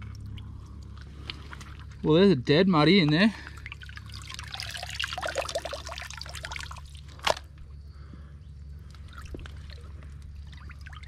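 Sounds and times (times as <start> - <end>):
wet mud squelching: 0.0 - 2.1
water trickling and dripping: 0.0 - 7.2, 8.9 - 11.0.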